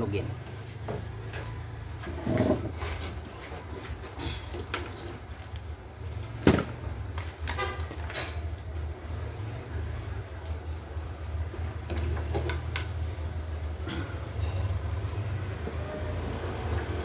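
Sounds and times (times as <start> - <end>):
knocks and rustles of handling: 0.4 - 9.7.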